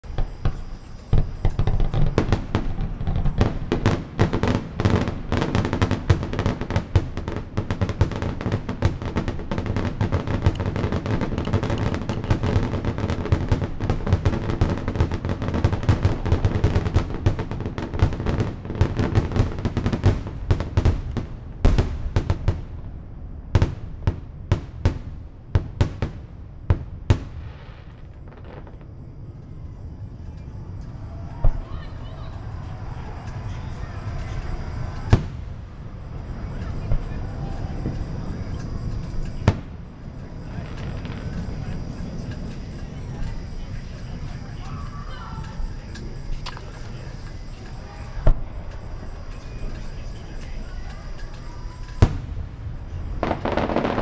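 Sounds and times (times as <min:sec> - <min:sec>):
firework shells bursting: 0:00.0 - 0:20.2, 0:30.2 - 0:52.4, 0:53.1 - 0:54.0
rolling rumble: 0:27.7 - 0:54.0.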